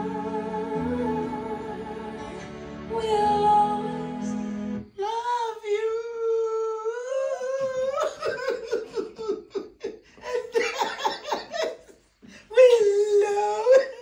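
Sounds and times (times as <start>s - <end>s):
music with singing: 0.0s - 4.9s
group laughing: 7.6s - 12.0s.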